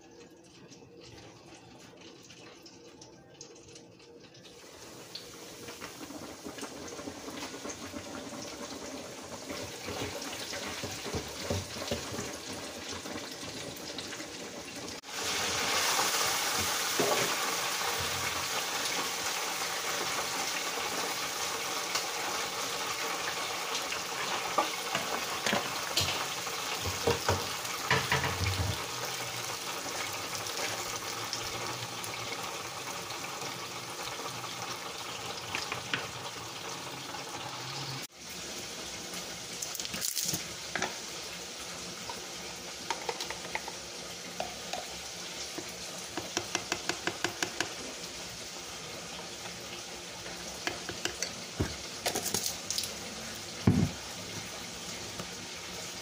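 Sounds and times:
oil sizzling in deep fryer: 0.0s - 56.0s
fry basket knocking: 46.2s - 47.8s, 53.6s - 54.0s.

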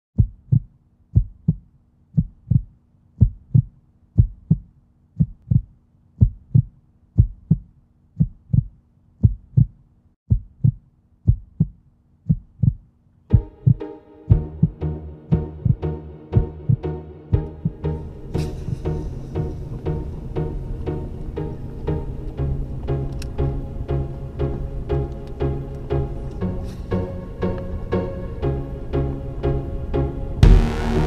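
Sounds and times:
deep paired drum beats: 0.2s - 1.6s, 2.2s - 19.0s, 30.4s - 31.0s
held low tone: 13.3s - 24.9s, 26.8s - 31.0s
fuller instrumental music: 13.3s - 31.0s.

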